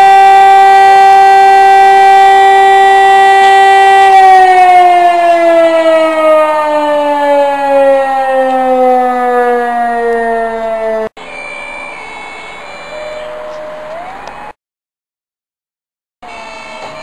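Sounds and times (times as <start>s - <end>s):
fire alarm siren winding down: 0.0s - 14.6s, 16.2s - 17.0s
street sound: 0.0s - 14.6s, 16.2s - 17.0s.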